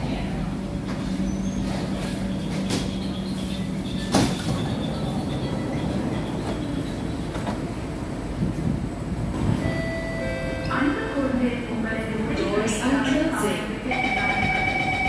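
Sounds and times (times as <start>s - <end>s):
metro train braking: 0.4s - 15.0s
train clunk: 0.8s - 10.3s.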